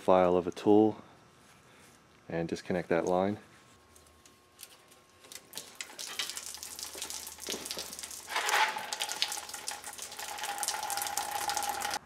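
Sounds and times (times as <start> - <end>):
fuel pouring and splashing: 5.3 - 12.0.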